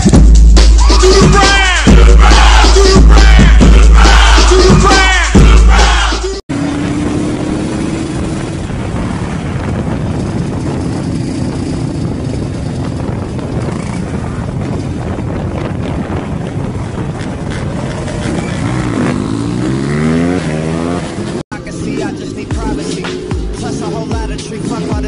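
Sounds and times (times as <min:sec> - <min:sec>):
dirt bike engine revving: 0:05.8 - 0:12.8, 0:16.7 - 0:21.4.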